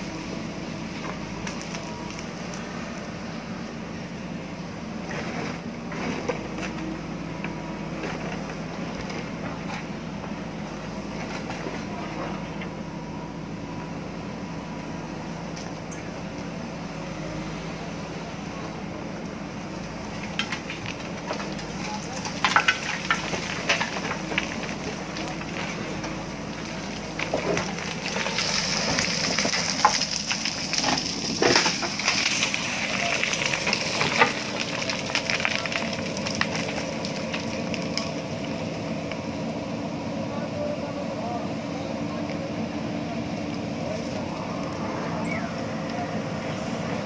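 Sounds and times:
diesel engine running under load: 0.0 - 47.0.

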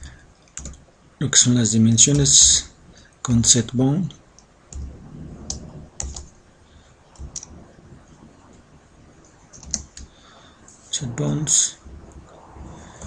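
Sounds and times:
computer keyboard key taps: 0.5 - 0.8, 5.5 - 6.3.

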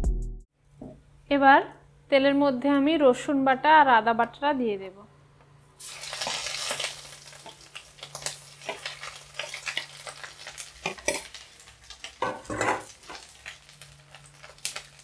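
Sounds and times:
paste sizzling in hot oil: 5.8 - 15.0
spoon scraping pan: 8.6 - 11.4, 12.0 - 13.2.

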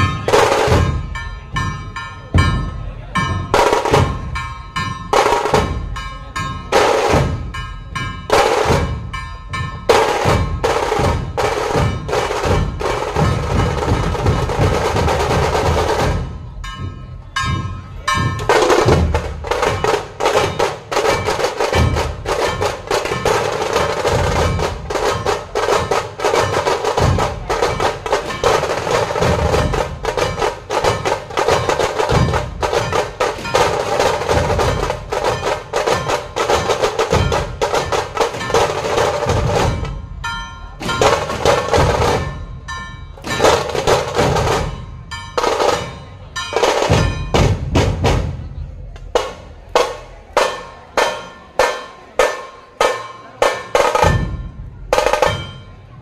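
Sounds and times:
dhol drums struck: 0.0 - 55.7
snare drum rolls: 8.3 - 16.5, 17.6 - 40.0, 40.8 - 42.4, 43.2 - 44.8, 45.4 - 55.6.

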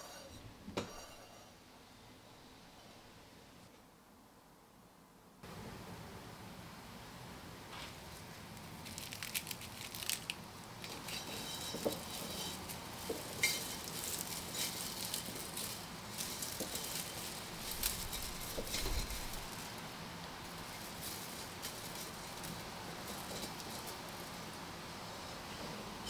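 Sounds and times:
dried stems rustling: 7.7 - 26.0.

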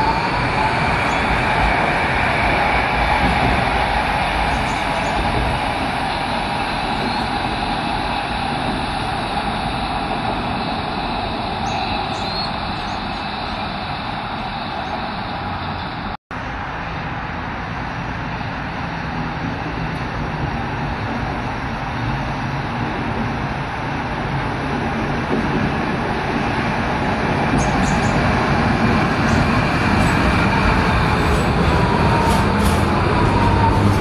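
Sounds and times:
electric tram running: 0.0 - 34.0
tram braking whine: 0.0 - 34.0
road traffic: 5.2 - 24.8, 27.2 - 34.0.

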